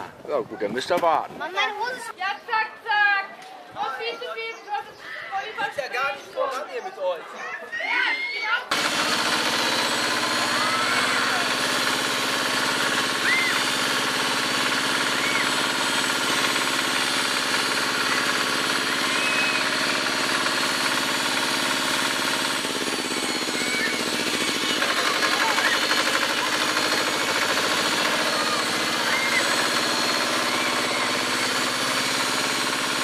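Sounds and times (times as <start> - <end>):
children shouting: 7.3 - 8.7, 10.0 - 11.9, 12.9 - 13.9, 14.7 - 15.8, 17.4 - 20.4, 23.0 - 32.4
tractor engine running: 8.7 - 33.0.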